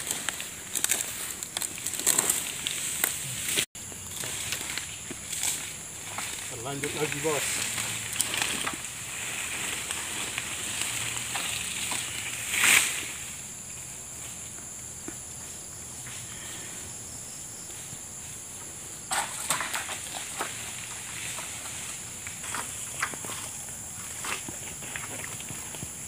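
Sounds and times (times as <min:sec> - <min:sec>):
palm fronds rustling: 0:00.0 - 0:26.0.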